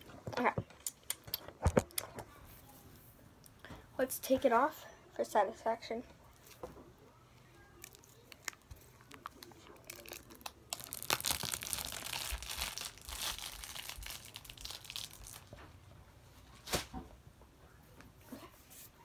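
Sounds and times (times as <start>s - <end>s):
wrapping crinkling and tearing: 7.8s - 15.6s.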